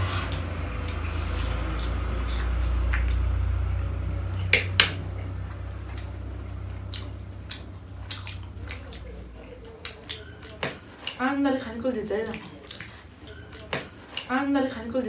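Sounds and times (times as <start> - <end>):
wet chewing: 0.2 - 11.4, 12.0 - 14.4.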